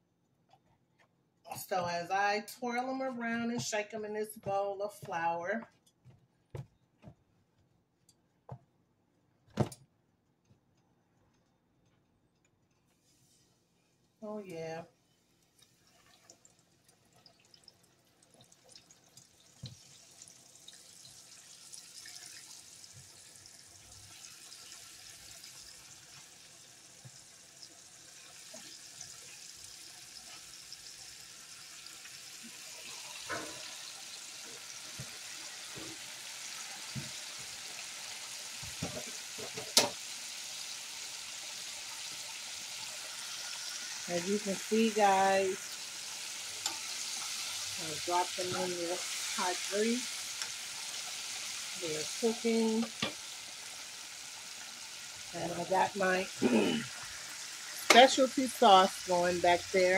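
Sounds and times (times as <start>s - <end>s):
oil sizzling in a pan: 14.4s - 59.9s.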